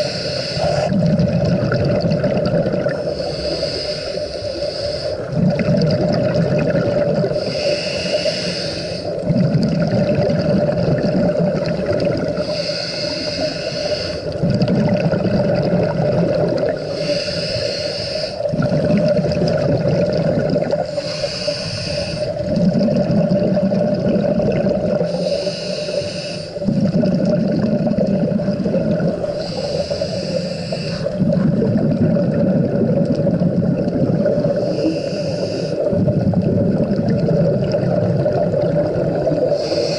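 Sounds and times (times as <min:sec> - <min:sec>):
regulator inhale hiss: 0:00.0 - 0:01.0, 0:03.0 - 0:05.4, 0:07.2 - 0:09.3, 0:12.3 - 0:14.4, 0:16.8 - 0:18.5, 0:20.8 - 0:22.5, 0:25.1 - 0:26.7, 0:29.0 - 0:31.4, 0:34.4 - 0:36.0, 0:39.4 - 0:39.9
bubbling exhale: 0:00.0 - 0:39.9.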